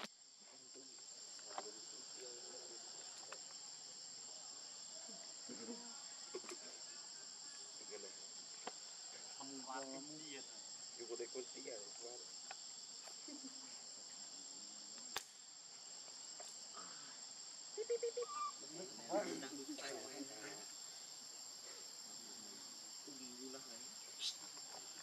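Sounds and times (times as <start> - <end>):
forest insects droning: 0.0 - 25.0
sharp click: 15.1 - 15.4.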